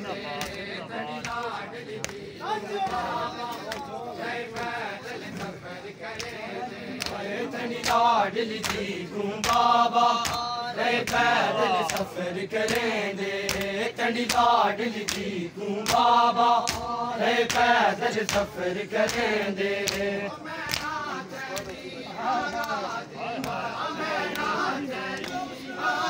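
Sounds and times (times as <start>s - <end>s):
men chanting in unison: 0.0s - 26.0s
hands slapping chests: 8.6s - 20.1s, 20.7s - 21.8s.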